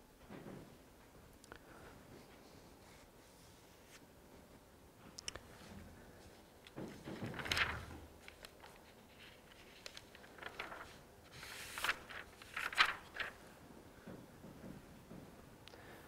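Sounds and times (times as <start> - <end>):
paper rustling: 5.5 - 13.5.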